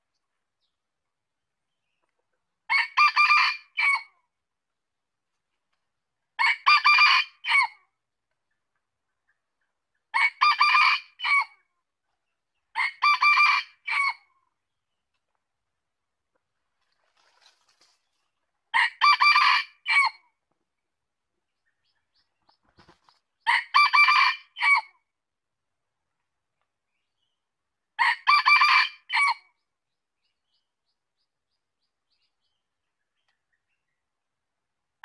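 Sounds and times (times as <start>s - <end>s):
rooster crowing: 18.8s - 20.2s, 23.5s - 24.9s, 28.0s - 29.4s.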